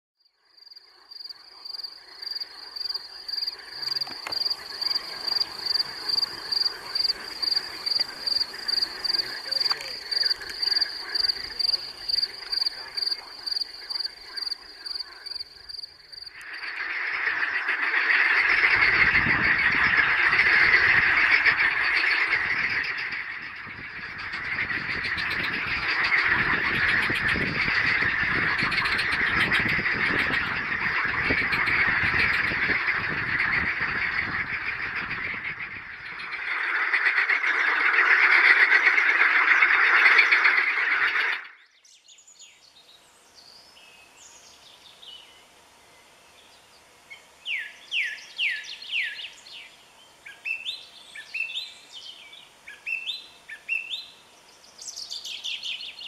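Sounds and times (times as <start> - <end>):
cricket chirping: 0.2 - 41.7
frogs croaking: 0.2 - 56.0.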